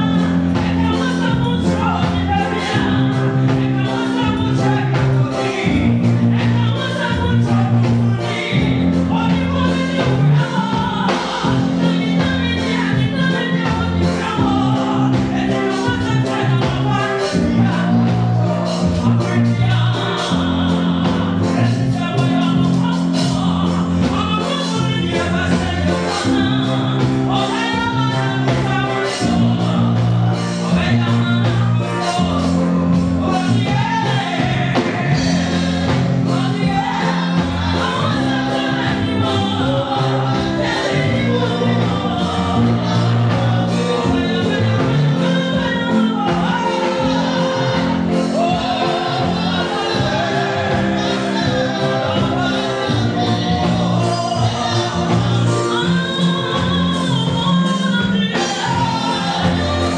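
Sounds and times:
instrumental accompaniment with beat: 0:00.0 - 0:59.9
woman singing: 0:00.0 - 0:59.9.

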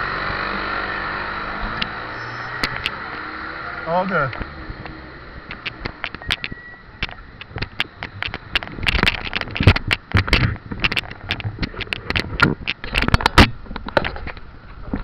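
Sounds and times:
camera rattling on mount: 0:02.6 - 0:03.0, 0:05.4 - 0:15.0.

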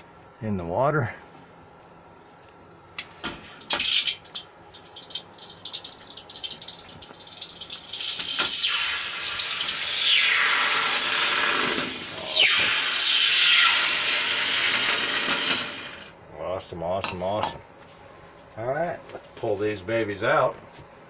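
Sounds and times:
hot metal sizzling in water: 0:03.5 - 0:16.1.

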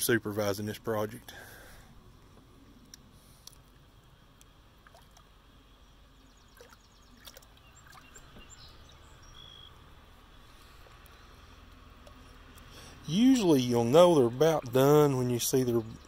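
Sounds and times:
steady low rumble: 0:00.0 - 0:16.0
faint clicks: 0:02.2 - 0:03.8.

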